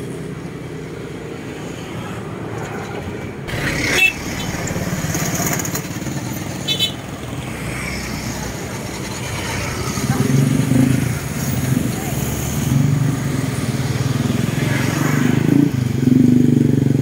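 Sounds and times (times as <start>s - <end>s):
traffic engines passing: 0.0s - 17.0s.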